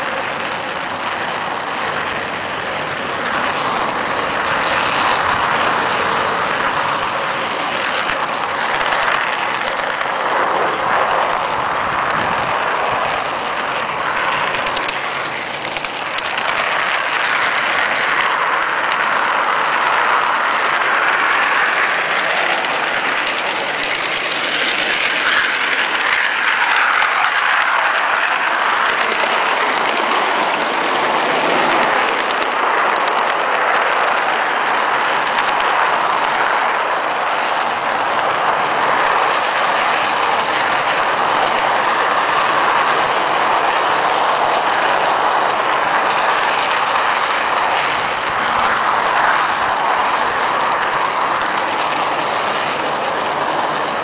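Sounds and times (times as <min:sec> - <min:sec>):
model train wheels on rails: 0:00.0 - 0:54.0.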